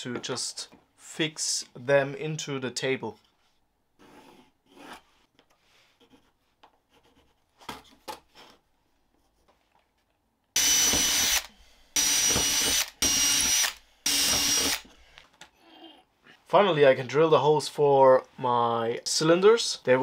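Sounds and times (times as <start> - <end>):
pencil scratching: 6.0 - 7.6
drill whining into wood: 10.6 - 15.0.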